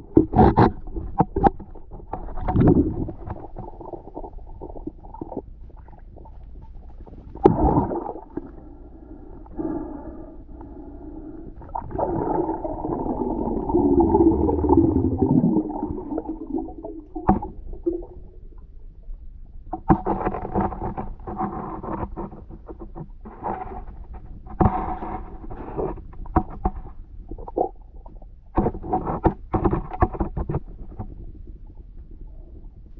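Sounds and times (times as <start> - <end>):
underwater bubbling: 0.0 - 19.8
underwater gurgling rumble: 0.0 - 29.2, 29.8 - 32.9.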